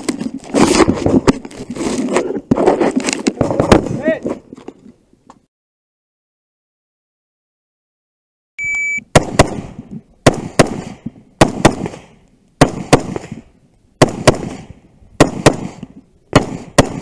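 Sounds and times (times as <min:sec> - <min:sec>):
shot timer beep: 0:08.6 - 0:09.1
rifle firing rapid shots: 0:10.3 - 0:12.0, 0:12.6 - 0:13.4, 0:14.0 - 0:14.6, 0:15.2 - 0:15.8, 0:16.4 - 0:17.0.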